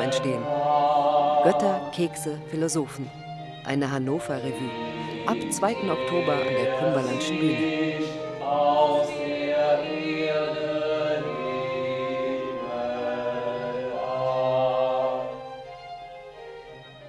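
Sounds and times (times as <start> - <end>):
voices singing held notes: 0.0 - 2.1, 4.4 - 15.7.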